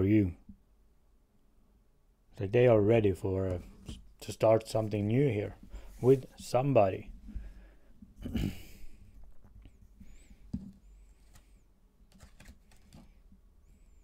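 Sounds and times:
cards rustling: 9.2 - 13.2.

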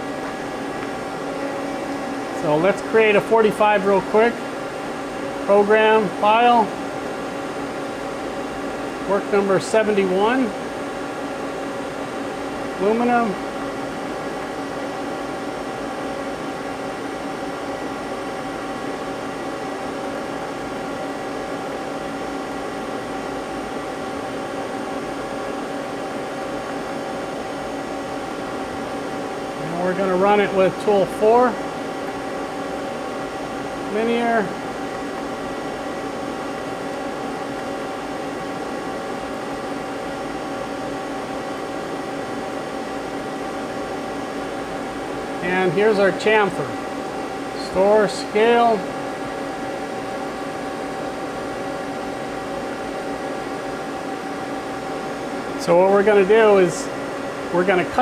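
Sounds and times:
lathe humming and whirring: 0.0 - 58.0.

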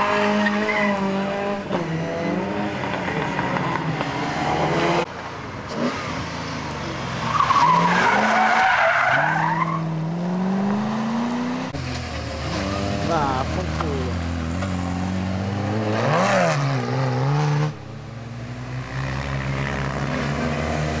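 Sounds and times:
rally car engine revving: 5.7 - 21.0.

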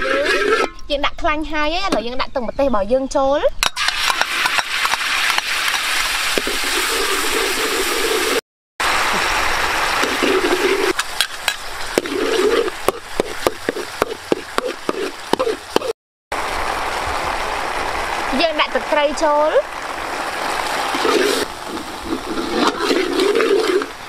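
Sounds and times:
sauce sizzling in hot oil: 3.8 - 15.9
metal ladle scraping and tapping wok: 10.0 - 15.9.

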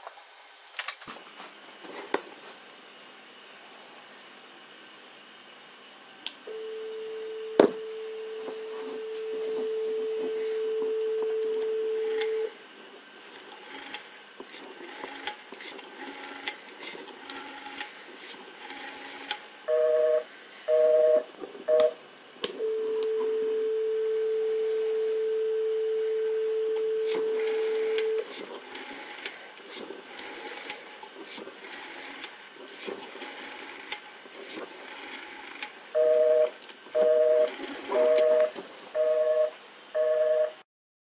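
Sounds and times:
telephone dial tone: 6.5 - 12.5, 19.7 - 22.0, 22.6 - 28.3, 36.0 - 40.6.

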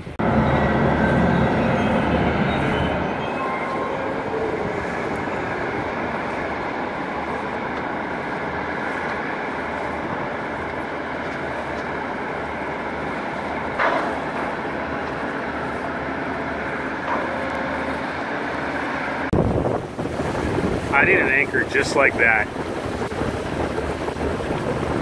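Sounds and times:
steady mechanical rumble: 0.0 - 25.0.

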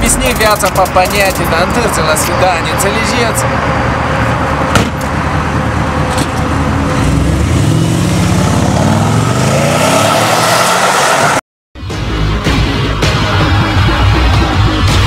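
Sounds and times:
car engine revving: 0.0 - 11.4.

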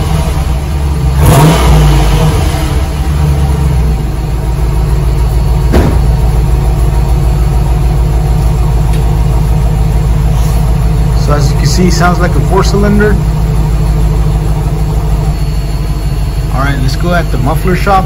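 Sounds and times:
engine revving and idling: 0.0 - 18.0.

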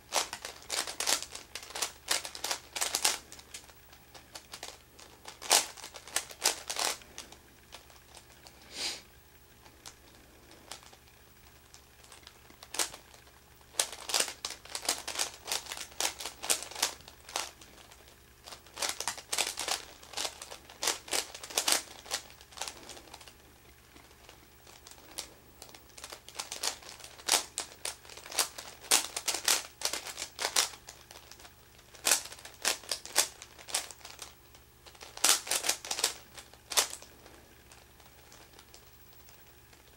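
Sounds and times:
puzzle cube clicking: 0.1 - 7.0, 13.7 - 17.9, 18.8 - 23.3, 26.0 - 34.3, 35.0 - 37.0.

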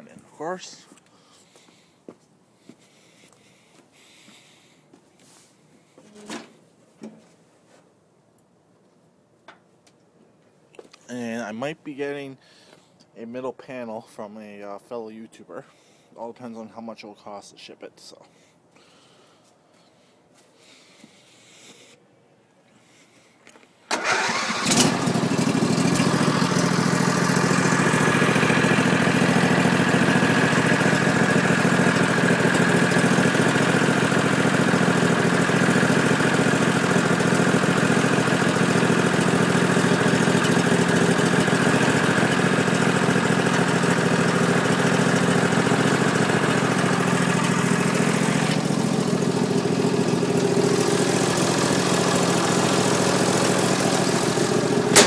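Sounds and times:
tractor engine starting and idling: 23.9 - 55.0.

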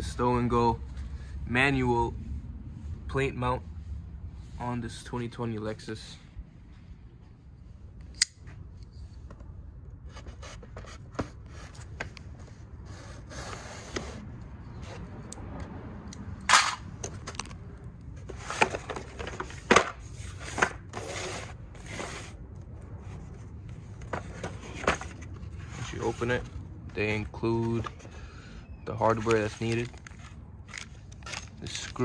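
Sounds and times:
cardboard scraping: 18.2 - 22.4, 24.0 - 26.6.

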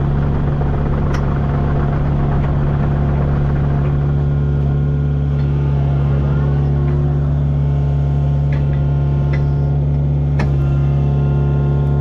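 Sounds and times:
diesel engine droning: 0.0 - 12.0.

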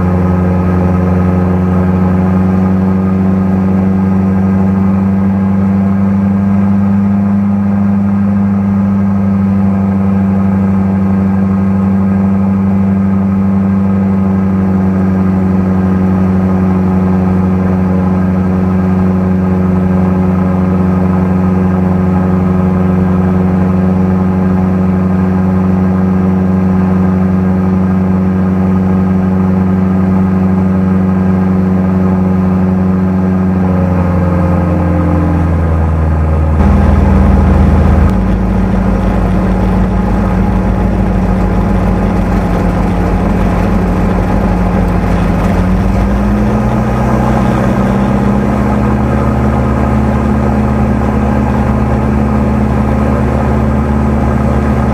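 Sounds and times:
light aircraft engine and propeller: 0.0 - 54.9
rush of noise: 28.2 - 54.9.

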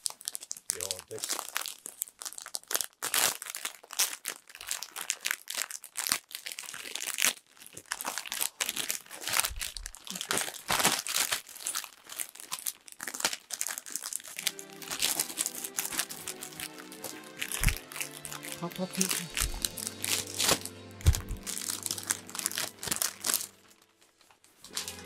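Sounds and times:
plastic packaging crinkling: 0.0 - 25.0
background music with held notes: 14.4 - 24.0, 24.7 - 25.0.

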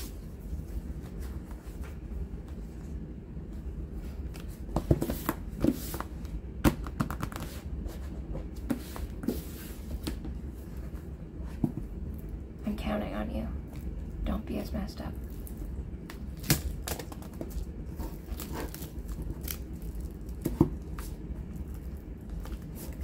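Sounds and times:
cardboard rustling and sliding: 4.0 - 6.1, 7.4 - 11.8.

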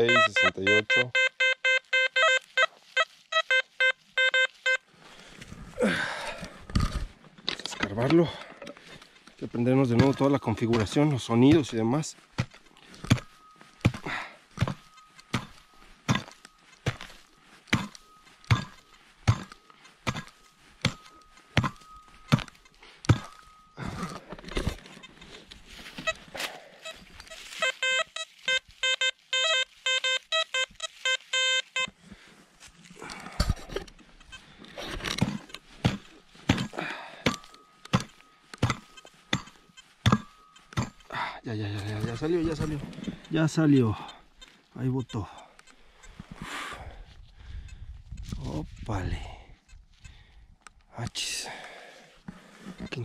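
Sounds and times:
metal detector beeping: 0.0 - 4.9, 6.5 - 50.8
digging tool chopping stony ground: 7.8 - 26.6, 33.0 - 44.2.

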